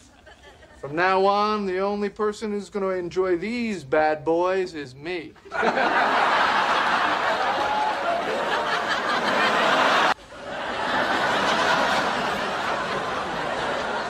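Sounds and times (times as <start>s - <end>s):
studio audience laughing: 0.0s - 0.8s, 5.4s - 14.0s.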